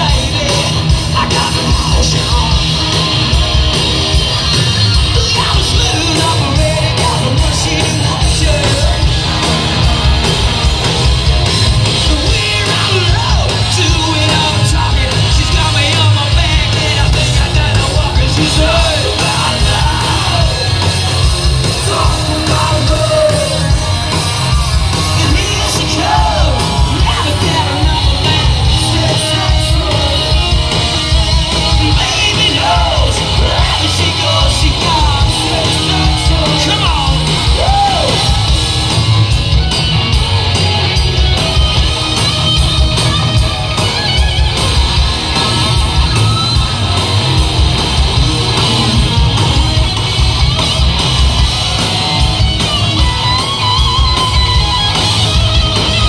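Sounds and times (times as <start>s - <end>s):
male singer: 0.0s - 2.8s, 5.1s - 9.2s, 12.0s - 20.9s, 21.6s - 23.8s, 25.0s - 30.6s, 31.6s - 38.4s
live hard rock band: 0.0s - 56.0s.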